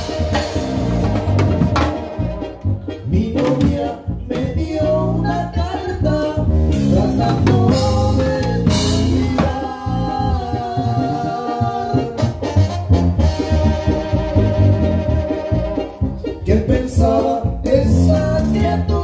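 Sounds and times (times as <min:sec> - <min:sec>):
drum kit: 0:00.0 - 0:19.0
person singing through pa: 0:00.0 - 0:19.0.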